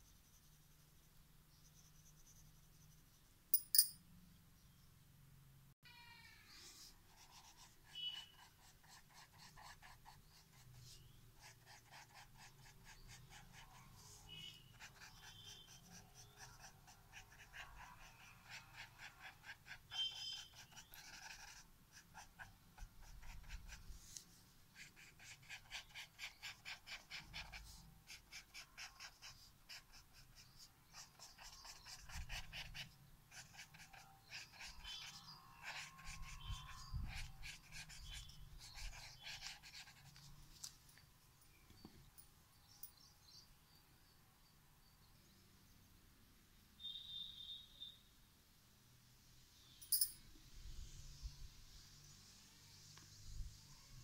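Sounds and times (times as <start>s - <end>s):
tool rubbing on paper: 24.8s - 40.4s.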